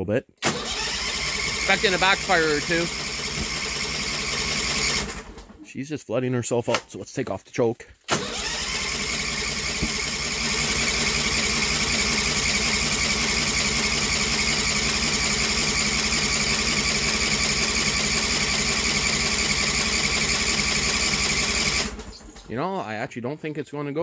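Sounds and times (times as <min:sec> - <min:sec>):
electric starter cranking engine: 0:00.4 - 0:05.6, 0:08.1 - 0:22.5.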